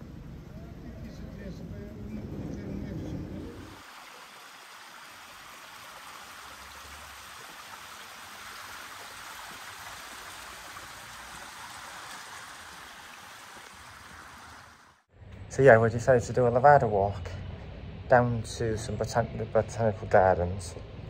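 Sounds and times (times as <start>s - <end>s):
water flowing in channel: 0.0s - 15.1s.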